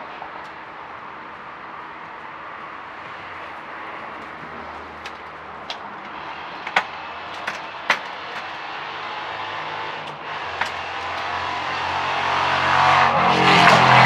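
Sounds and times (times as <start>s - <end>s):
motor vehicle approaching: 0.0s - 14.0s
sharp knocks: 6.6s - 8.6s, 10.5s - 11.9s.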